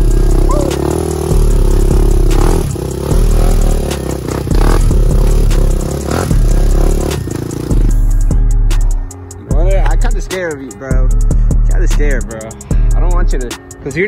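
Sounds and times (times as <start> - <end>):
quad engine revving: 0.0 - 8.3.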